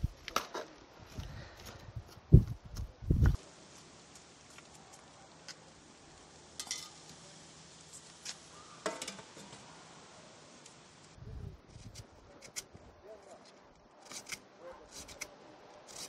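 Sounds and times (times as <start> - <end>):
faint steady hiss: 2.7 - 13.8.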